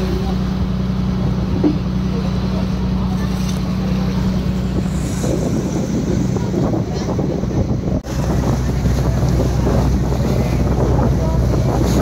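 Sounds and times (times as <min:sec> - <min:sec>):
boat engine droning: 0:00.0 - 0:12.0
water splashing past hull: 0:00.0 - 0:12.0
wind buffeting microphone: 0:00.0 - 0:12.0.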